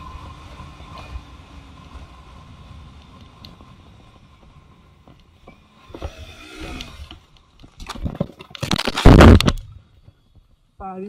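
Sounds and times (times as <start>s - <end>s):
motorcycle crash impact: 8.6s - 9.6s.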